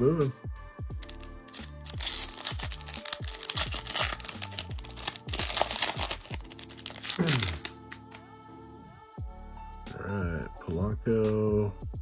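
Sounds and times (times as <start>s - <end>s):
electronic background music: 0.0s - 12.0s
foil wrapper crinkling and tearing: 1.0s - 8.2s.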